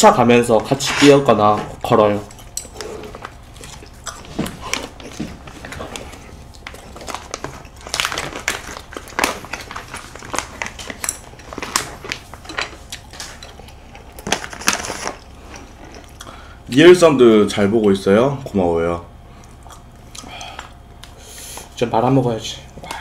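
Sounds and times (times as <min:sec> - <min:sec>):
chewing and mouth clicks: 0:02.3 - 0:07.9, 0:19.4 - 0:21.2.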